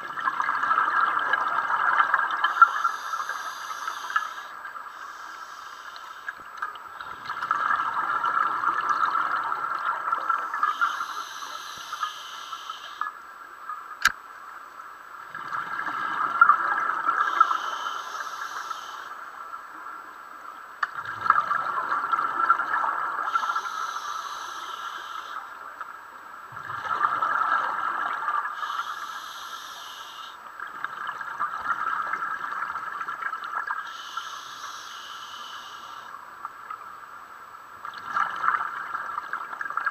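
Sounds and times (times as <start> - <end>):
hiss of regulator inhalation: 2.5 - 6.3, 10.4 - 13.1, 17.2 - 19.2, 23.3 - 25.5, 28.5 - 30.4, 33.8 - 36.2
bubbling exhaled air underwater: 6.9 - 13.0, 15.3 - 19.0, 21.0 - 25.5, 26.5 - 34.8.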